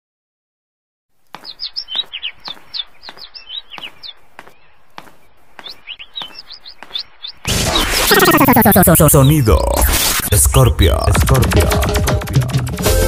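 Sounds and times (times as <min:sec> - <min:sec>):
footsteps on stone paving: 0:01.1 - 0:07.5
small birds chirping: 0:01.1 - 0:11.1.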